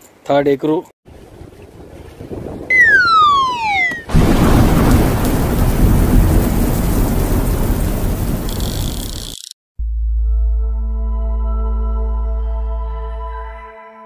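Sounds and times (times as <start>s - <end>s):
thunderclap rumbling: 1.2s - 9.2s
falling whistle: 2.7s - 4.1s.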